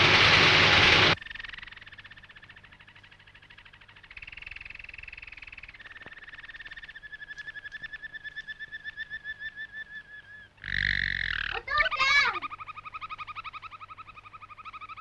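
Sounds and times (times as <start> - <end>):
songbird trilling: 1.2 - 15.0.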